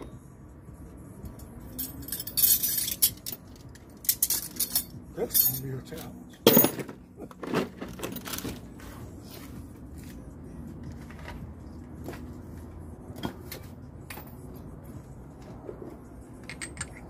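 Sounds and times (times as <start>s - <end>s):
low steady hum: 0.0s - 17.0s
metal tools clanking: 1.2s - 8.7s.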